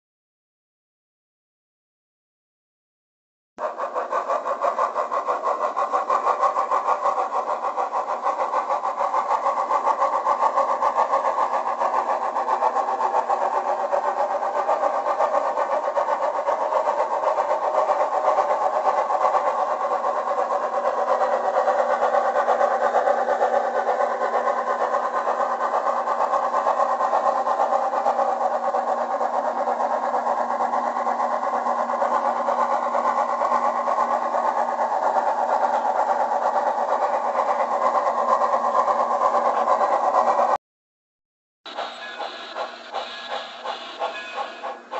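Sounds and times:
model steam locomotive sound: 0:03.6 - 0:40.6, 0:41.7 - 0:44.9.

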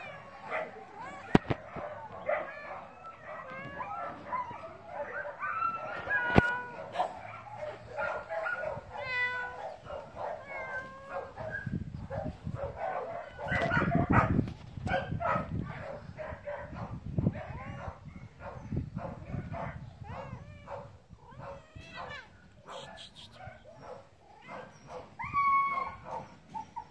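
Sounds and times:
dogs yipping whining and barking: 0:00.0 - 0:26.9
meow-like cries: 0:08.9 - 0:09.8, 0:10.4 - 0:11.3, 0:20.1 - 0:22.9, 0:25.2 - 0:26.0.

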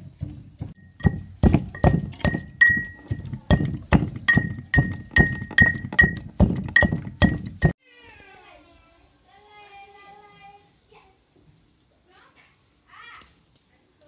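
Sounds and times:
brass mortar and pestle pounding: 0:00.0 - 0:07.8.

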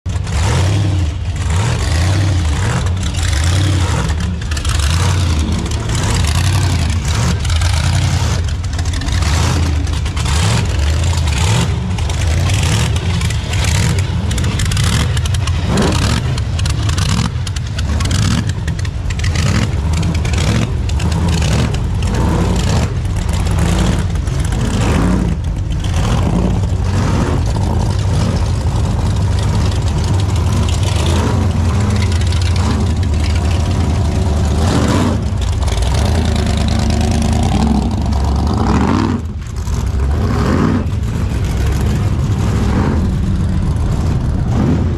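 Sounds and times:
engines rumbling with throttle blips: 0:00.0 - 0:44.9.

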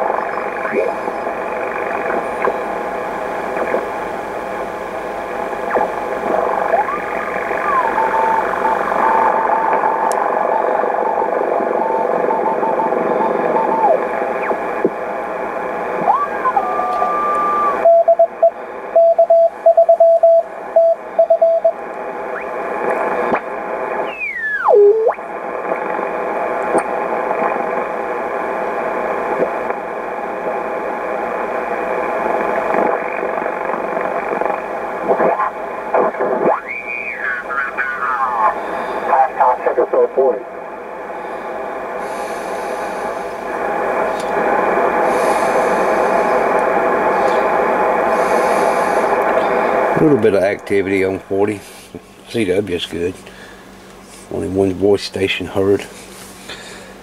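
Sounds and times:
radio band hiss: 0:00.0 - 0:57.0
gliding whistling tones: 0:16.1 - 0:17.8.

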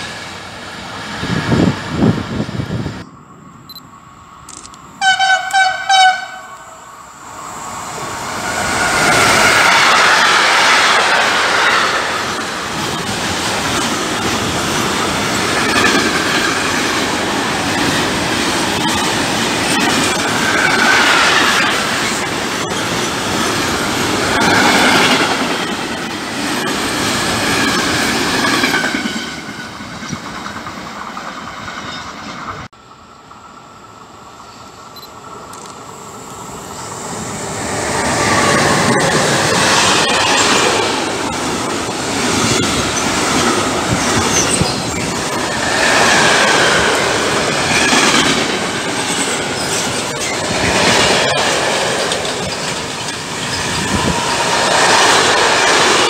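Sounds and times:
freight train passing: 0:00.0 - 0:56.0
train wheels clattering on rails: 0:08.3 - 0:32.7, 0:37.8 - 0:56.0.

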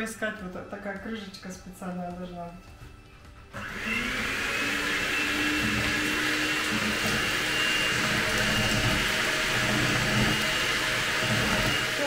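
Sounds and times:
electric mixer whirring: 0:03.5 - 0:12.0.

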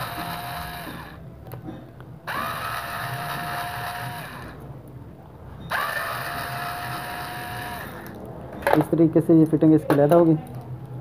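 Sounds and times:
electric screwdriver motor whining: 0:00.0 - 0:01.2, 0:02.3 - 0:04.6, 0:05.7 - 0:08.2.

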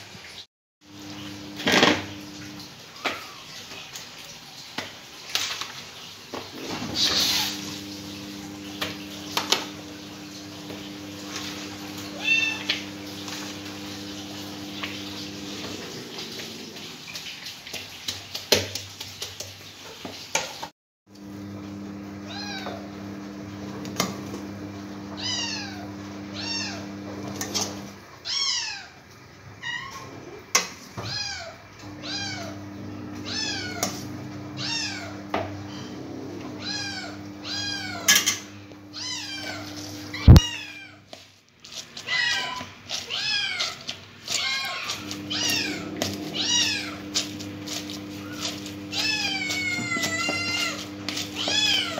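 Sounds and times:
cats meowing: 0:02.9 - 0:03.6, 0:11.2 - 0:17.0, 0:22.2 - 0:22.9, 0:25.1 - 0:27.0, 0:29.6 - 0:32.6, 0:33.2 - 0:38.2, 0:38.8 - 0:41.1, 0:42.0 - 0:51.9.

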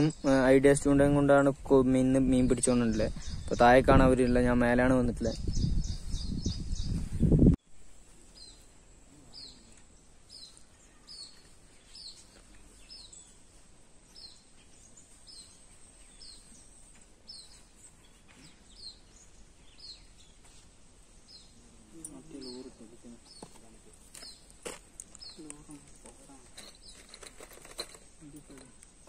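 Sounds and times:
bird chirping: 0:00.0 - 0:01.1, 0:01.9 - 0:29.0.

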